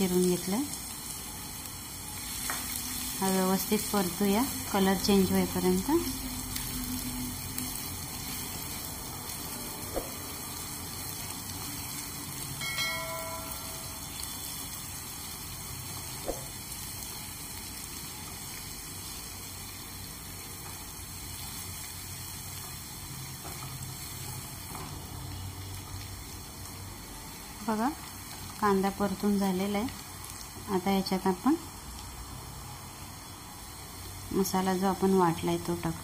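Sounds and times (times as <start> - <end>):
onion sizzling in hot oil: 0.0 - 36.0
ringing chime: 12.6 - 14.4.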